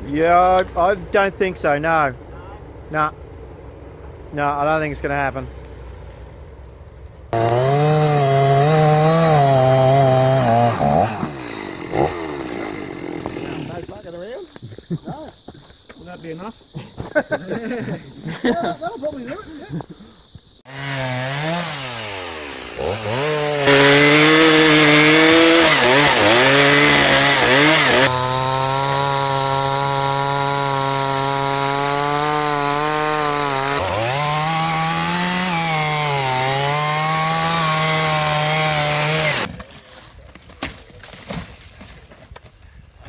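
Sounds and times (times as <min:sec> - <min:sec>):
chainsaw revving and cutting log: 0:07.3 - 0:13.8, 0:20.7 - 0:39.5.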